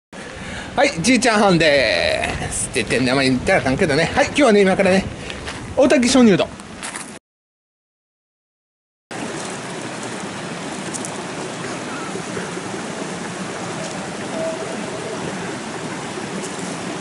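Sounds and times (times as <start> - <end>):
stream water rushing: 0.2 - 4.9, 9.1 - 17.0.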